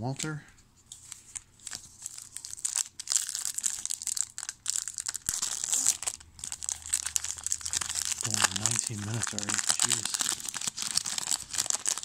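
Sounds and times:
plastic wrapper crinkling and tearing: 0:00.9 - 0:12.0
sharp wrapper snap: 0:05.2 - 0:06.2.

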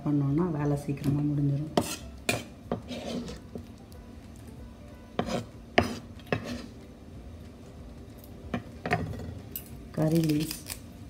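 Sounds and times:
utensils and dishes clinking: 0:08.2 - 0:10.8.

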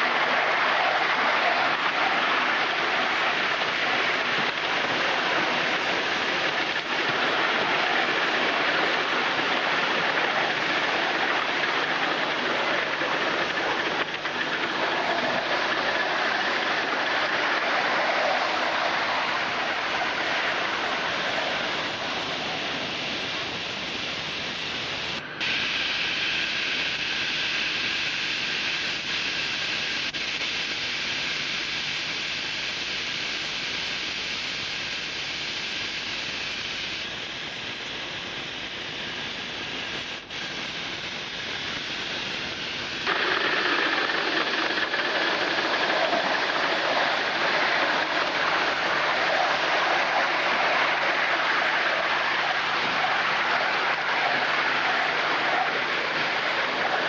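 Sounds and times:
wheels on rails: 0:00.0 - 0:25.4, 0:36.3 - 0:57.0
steam hissing: 0:00.0 - 0:57.0.

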